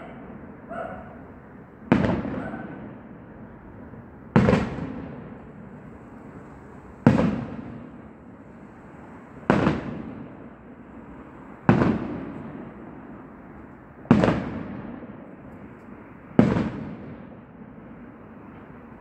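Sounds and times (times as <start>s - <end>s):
firework bangs with echo: 1.8s - 3.2s, 4.3s - 6.2s, 6.9s - 8.4s, 9.4s - 10.9s, 11.6s - 13.3s, 14.0s - 15.4s, 16.3s - 18.8s.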